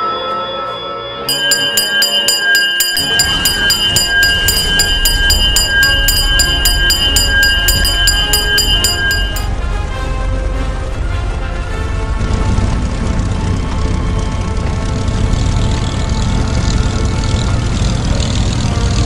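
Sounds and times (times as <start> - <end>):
music: 0.0 - 19.0
alarm bell ringing: 0.8 - 9.6.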